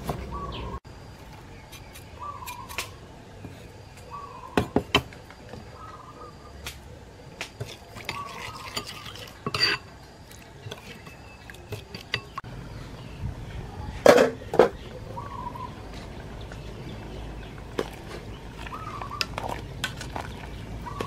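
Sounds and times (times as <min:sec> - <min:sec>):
metal spoon clinking in ceramic bowl: 0:08.3 - 0:09.9, 0:11.7 - 0:12.4.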